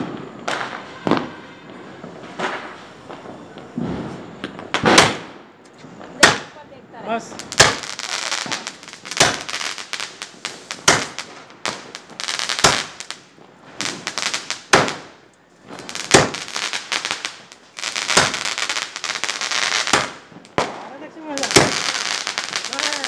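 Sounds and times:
firework bangs: 0.0s - 23.0s
crackle of bursting stars: 7.5s - 23.0s.

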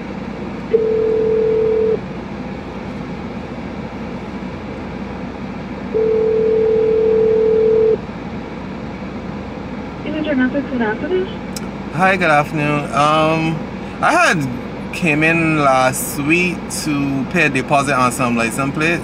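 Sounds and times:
low hum inside car: 0.0s - 19.0s
telephone ringback tone: 0.7s - 2.0s, 6.0s - 8.0s.

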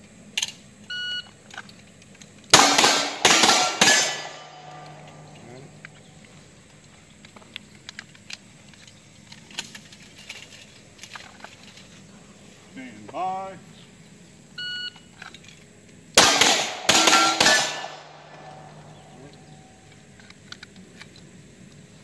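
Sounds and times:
handgun shots: 2.5s - 5.4s, 16.2s - 18.8s
steel plates ringing: 2.6s - 5.5s, 16.2s - 19.9s.

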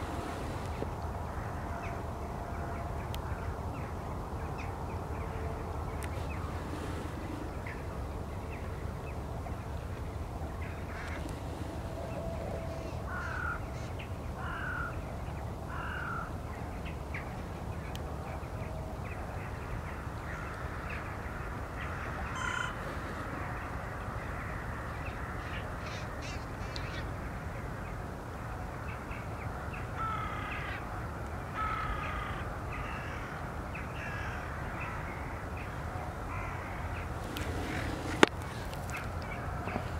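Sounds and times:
crows cawing: 10.6s - 11.3s, 12.0s - 15.0s, 15.7s - 16.3s, 20.0s - 23.7s, 30.0s - 30.8s, 31.6s - 33.4s, 34.0s - 39.9s.

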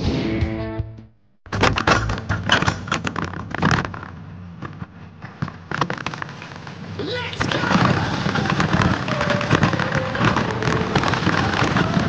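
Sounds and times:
coaster sled rattling on steel rail: 5.7s - 12.0s.

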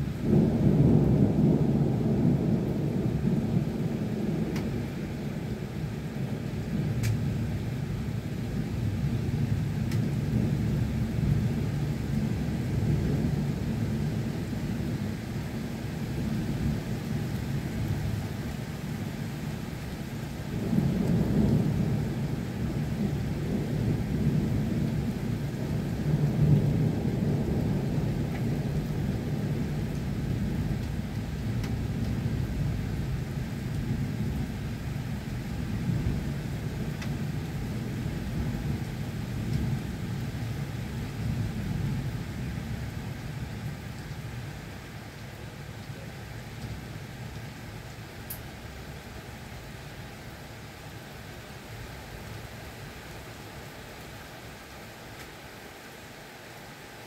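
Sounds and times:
low rumbling thunder: 0.0s - 19.0s, 19.8s - 44.6s
steady rain: 0.0s - 57.0s.

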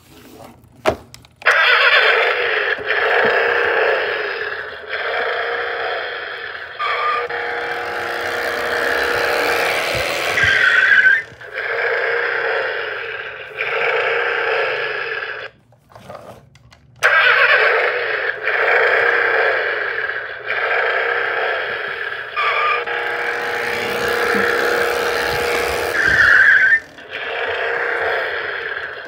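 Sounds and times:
toy speaker revving engine effects: 1.4s - 15.5s, 17.0s - 29.0s
rising and falling squeal: 6.8s - 13.2s, 22.4s - 29.0s.

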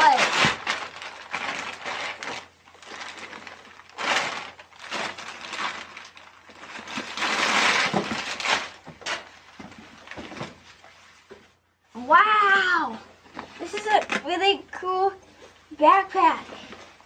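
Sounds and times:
plastic packaging crinkling: 0.0s - 11.1s.

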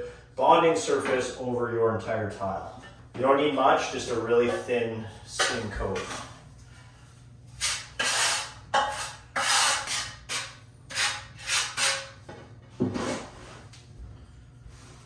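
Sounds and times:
trowel scraping mortar on tile: 7.6s - 12.2s.

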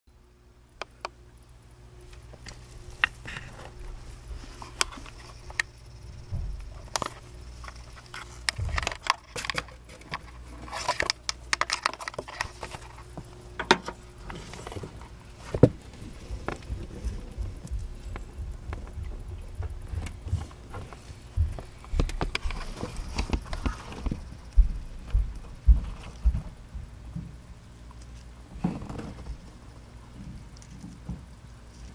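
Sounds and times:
low steady hum: 0.1s - 31.9s
rustling: 1.9s - 24.4s.

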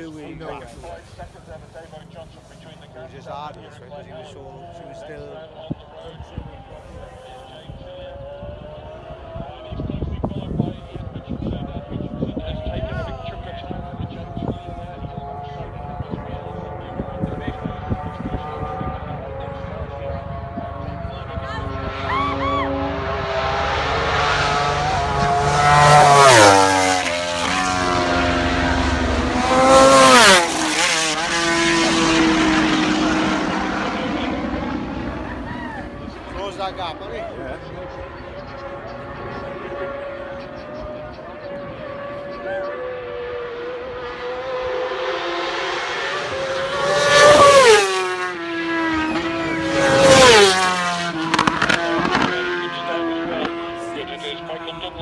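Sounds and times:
quieter motorcycle engine: 0.0s - 55.0s
racing motorcycles passing: 0.0s - 55.0s.

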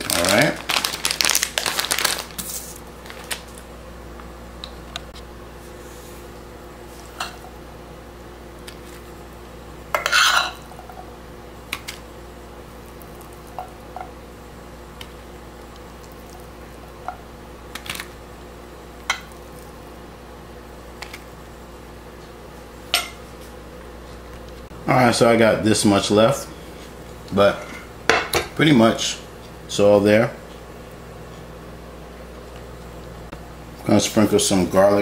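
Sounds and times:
metal spoon scraping frying pan: 10.0s - 10.6s.

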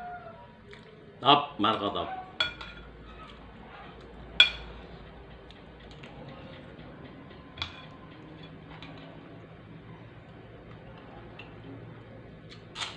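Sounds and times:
spoon clinking against plate: 2.4s - 3.4s, 4.4s - 4.9s, 7.4s - 9.3s.

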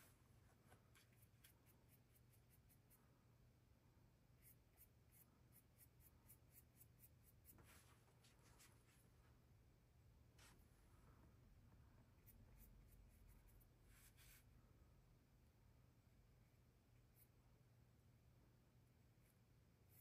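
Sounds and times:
paintbrush dabbing paint: 0.0s - 3.1s, 4.2s - 7.9s, 12.0s - 14.5s, 19.1s - 20.0s
low steady hum: 0.0s - 20.0s.

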